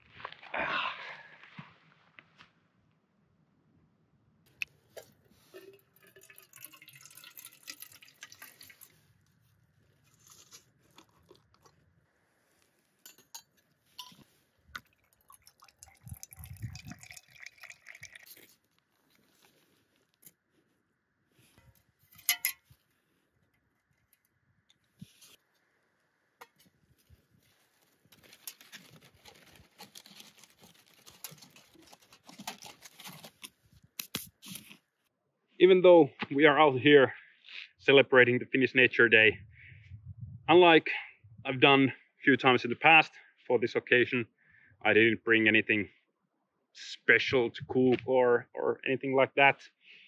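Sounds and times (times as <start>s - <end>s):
liquid fuel trickling: 5.0s - 9.1s, 14.0s - 18.7s.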